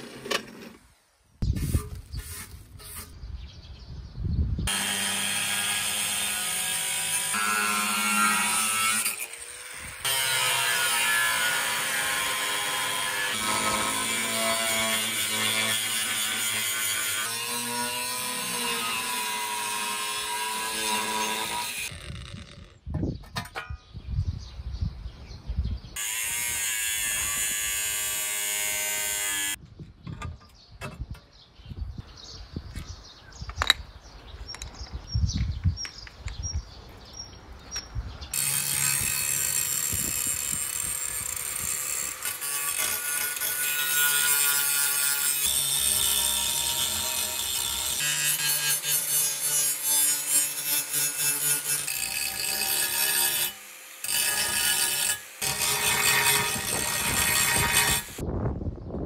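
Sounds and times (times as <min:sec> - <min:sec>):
angle grinder grinding steel: 0:04.7 - 0:22.8, 0:38.3 - 0:58.2.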